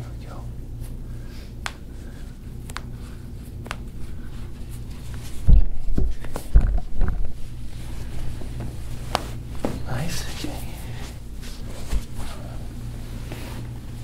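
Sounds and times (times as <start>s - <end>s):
hands and towel handling foot: 0.8s - 10.2s, 11.4s - 12.6s.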